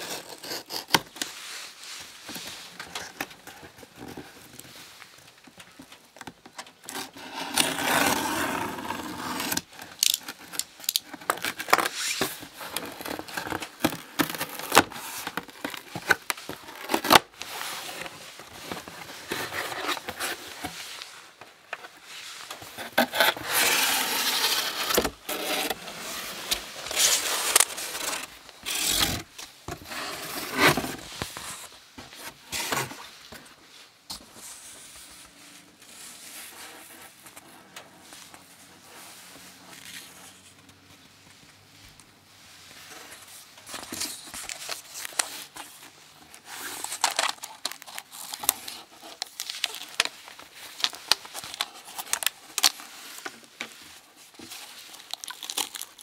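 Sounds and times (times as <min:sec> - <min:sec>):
cardboard scraping and rubbing: 0:06.9 - 0:33.5
package sliding out of box: 0:22.9 - 0:33.1.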